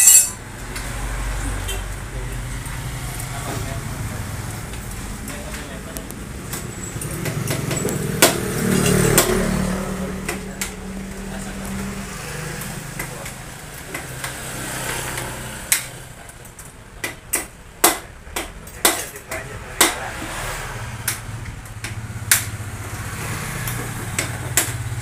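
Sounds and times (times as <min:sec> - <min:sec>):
sharp knocks: 0:07.1 - 0:09.7
motorcycle engine running: 0:20.2 - 0:25.0.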